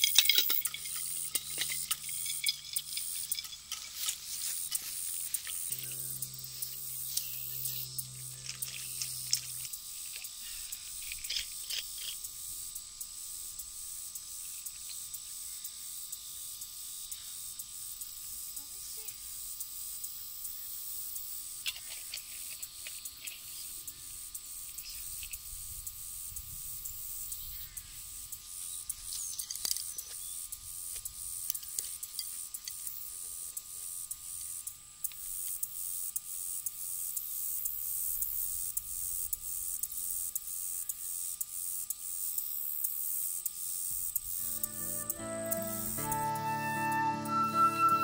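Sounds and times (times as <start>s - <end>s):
container being handled: 0.0s - 5.9s
insects buzzing: 0.0s - 48.0s.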